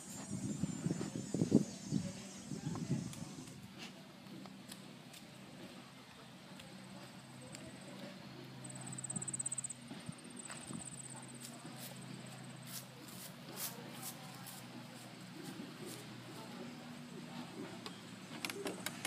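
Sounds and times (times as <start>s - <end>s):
footsteps on stone and grass: 8.8s - 17.0s.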